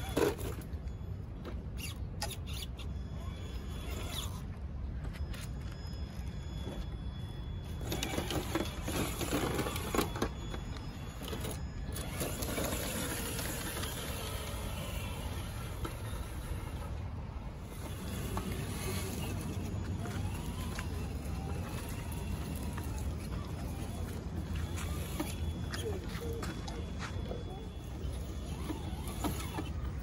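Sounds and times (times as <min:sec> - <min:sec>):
electric motor whirring: 0:07.8 - 0:30.0.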